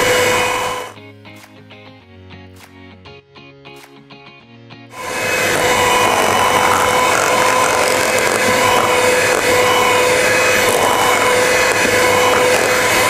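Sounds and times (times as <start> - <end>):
electric mixer whisking batter: 0.0 - 1.0, 5.0 - 13.0.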